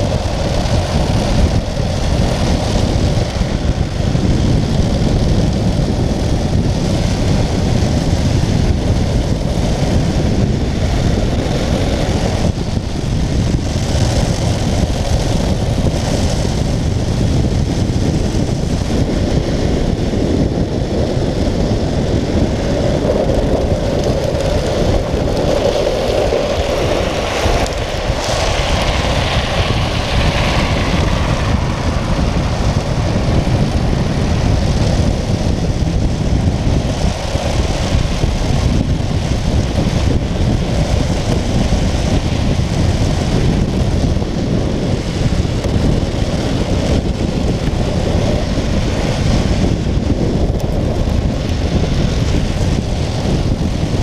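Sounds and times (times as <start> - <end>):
wheels rumbling on asphalt: 0.0 - 54.0
wind buffeting microphone: 0.0 - 54.0.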